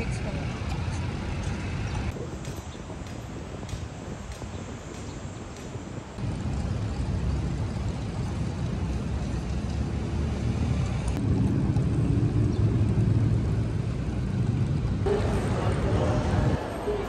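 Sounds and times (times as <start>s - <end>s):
low rumble of traffic: 0.0s - 17.0s
wind on microphone: 0.0s - 17.0s.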